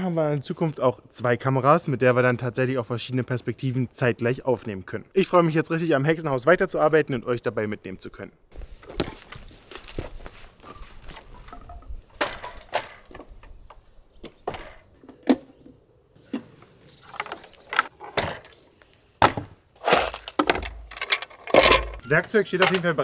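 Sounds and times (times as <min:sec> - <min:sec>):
wooden knocks and clatter: 0:11.2 - 0:15.5, 0:19.2 - 0:22.9.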